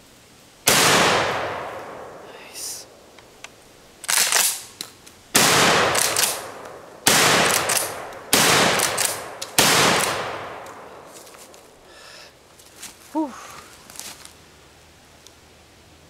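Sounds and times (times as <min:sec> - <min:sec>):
shotgun shots echoing: 0:00.7 - 0:02.2, 0:05.3 - 0:11.1.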